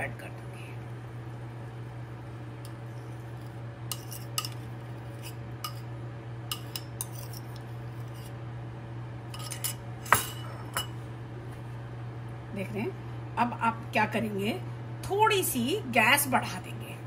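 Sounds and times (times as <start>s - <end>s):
steady low hum: 0.0s - 17.0s
metal spoon scraping ceramic bowl: 3.9s - 5.9s, 6.5s - 8.3s, 9.3s - 10.4s.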